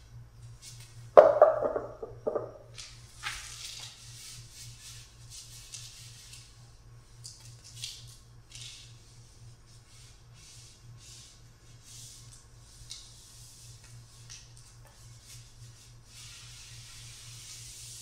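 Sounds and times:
low steady hum: 0.0s - 18.0s
brush swishing across paper: 14.9s - 18.0s.

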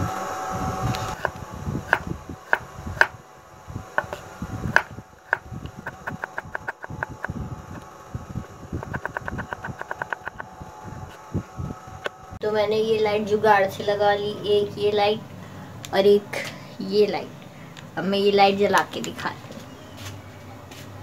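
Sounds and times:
knife chopping on wooden board: 4.0s - 7.3s.

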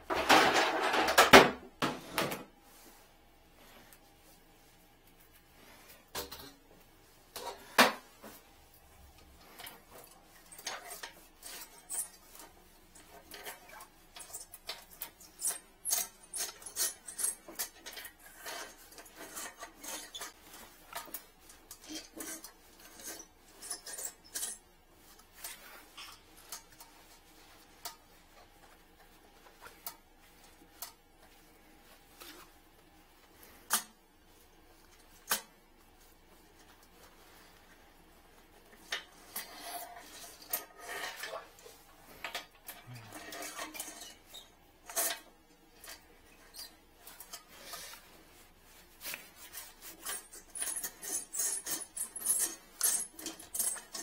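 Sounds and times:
metal wire hook clicking and scraping: 9.4s - 28.0s, 42.1s - 48.0s, 49.4s - 54.0s.

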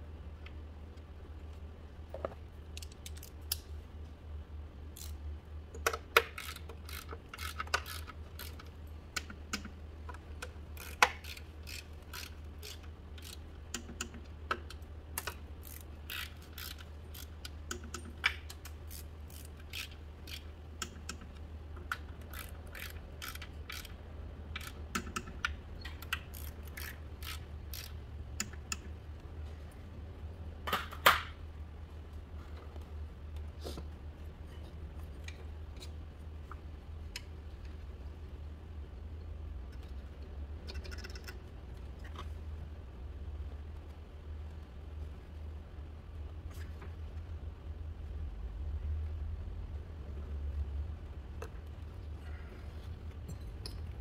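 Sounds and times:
steady low hum: 0.0s - 54.0s
metallic clicks of hand tools: 5.0s - 28.9s.

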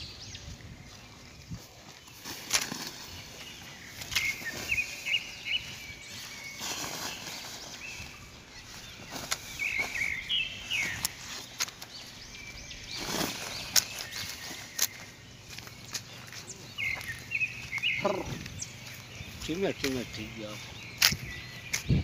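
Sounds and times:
birds chirping: 0.0s - 22.0s
footsteps on dry grass: 0.0s - 22.0s
plastic sack crackling: 1.6s - 16.4s.

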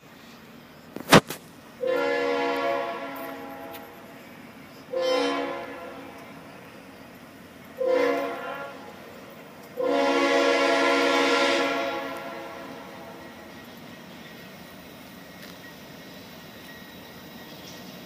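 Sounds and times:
locomotive air horn chord: 1.8s - 4.0s, 4.8s - 6.5s, 7.8s - 9.2s, 9.8s - 13.2s.

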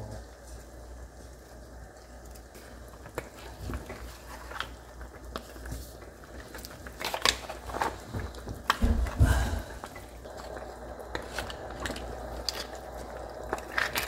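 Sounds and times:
steady low hum: 7.7s - 14.0s.

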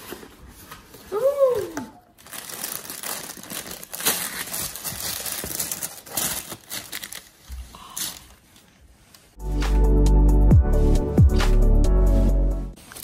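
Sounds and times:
tissue paper rustling: 0.0s - 9.4s, 12.0s - 13.0s.

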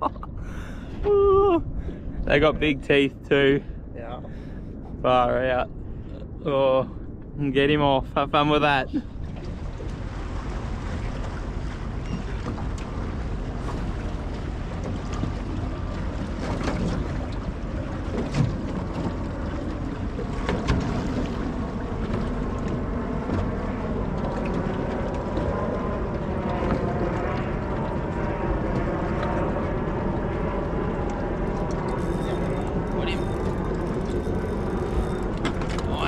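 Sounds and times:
wind buffeting microphone: 0.0s - 36.0s
water lapping against boat hull: 9.0s - 36.0s.

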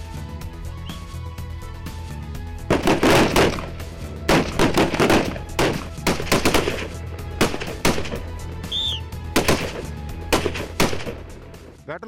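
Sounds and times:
rifle shots with echo: 2.7s - 8.4s, 9.4s - 11.3s.

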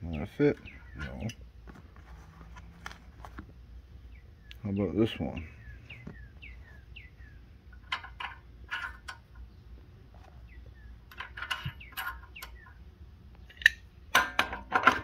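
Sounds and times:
bird chirping: 0.0s - 1.6s, 3.8s - 14.1s.

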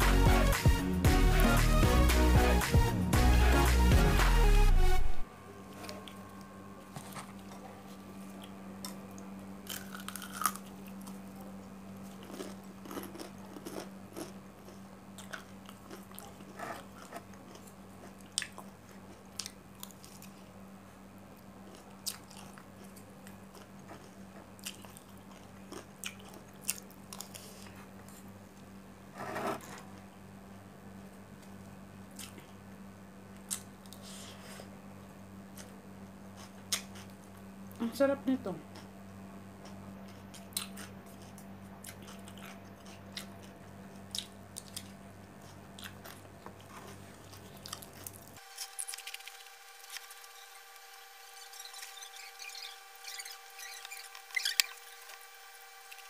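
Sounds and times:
steady low hum: 0.0s - 56.0s
chewing and crunching: 6.9s - 20.6s, 21.3s - 28.3s, 31.4s - 32.6s, 33.3s - 34.6s, 35.5s - 37.4s, 39.6s - 56.0s.

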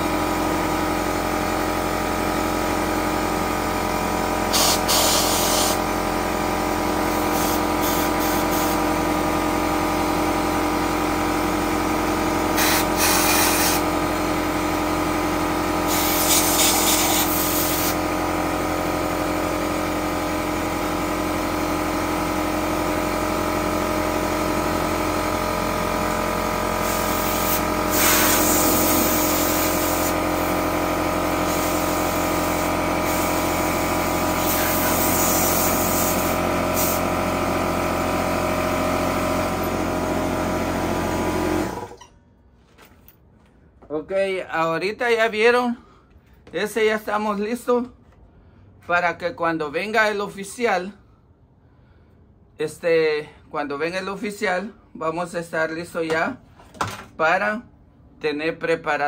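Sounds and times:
air compressor drone: 0.0s - 42.2s, 51.0s - 53.5s
air blow gun hissing blasts: 4.5s - 5.9s, 7.0s - 8.9s, 12.5s - 14.0s, 15.8s - 18.0s, 26.8s - 30.6s, 31.3s - 37.2s.

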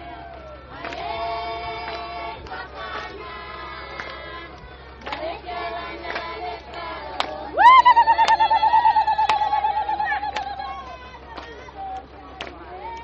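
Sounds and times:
group of voices singing: 0.0s - 13.0s
high warbling cry: 7.6s - 10.7s.

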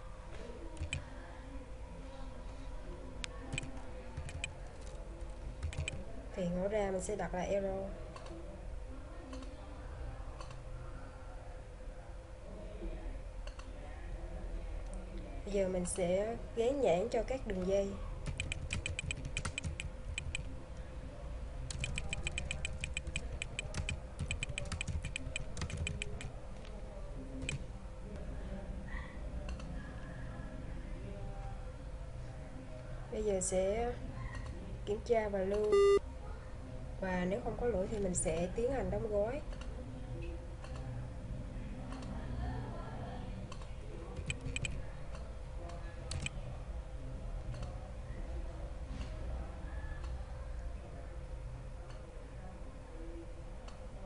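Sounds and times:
faint steady hum: 0.0s - 54.0s
typing on computer keyboard: 0.8s - 1.1s, 3.5s - 5.0s, 5.6s - 6.0s, 18.2s - 20.5s, 21.7s - 26.3s, 27.4s - 27.6s, 43.5s - 44.8s, 46.1s - 46.4s.

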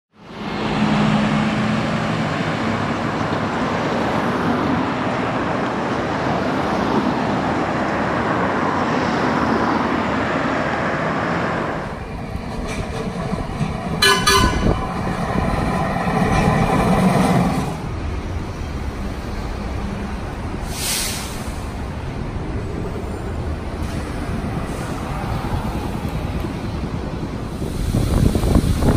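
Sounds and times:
street traffic: 0.1s - 28.9s
streetcar running on track: 0.1s - 28.9s
vehicle rumbling past: 0.3s - 28.9s
vehicle horn toot: 14.0s - 14.8s.

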